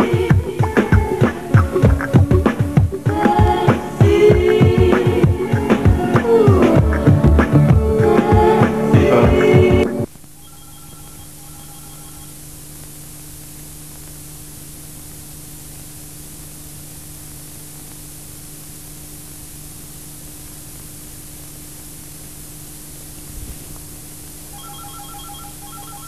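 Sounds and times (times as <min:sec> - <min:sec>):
tape hiss: 0:00.0 - 0:26.0
low electrical hum: 0:10.0 - 0:26.0.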